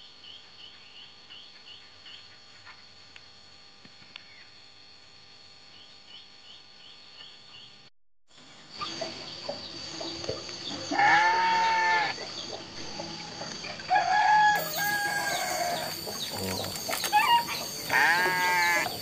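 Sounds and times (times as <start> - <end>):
rooster crowing: 13.8 - 16.2, 17.1 - 19.0.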